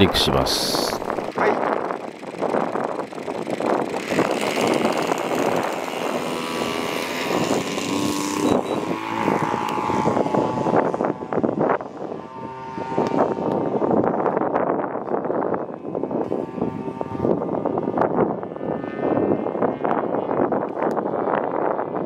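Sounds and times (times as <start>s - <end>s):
model plane engine at high throttle: 0.7s - 22.0s.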